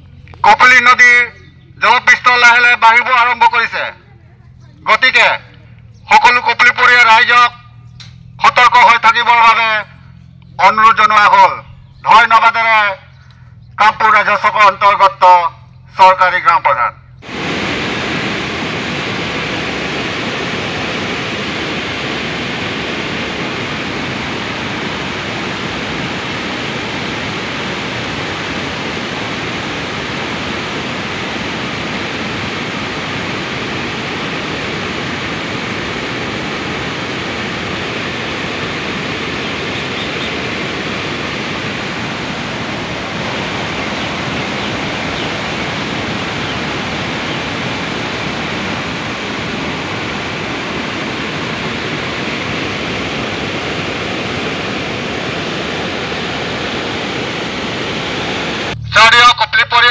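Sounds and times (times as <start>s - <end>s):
water rushing through spillway: 17.2s - 58.8s.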